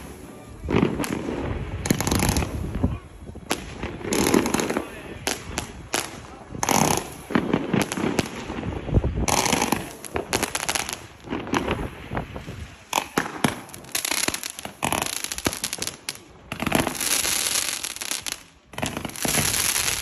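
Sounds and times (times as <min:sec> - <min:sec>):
firework bangs: 0:00.0 - 0:20.0
firework crackling: 0:00.0 - 0:20.0.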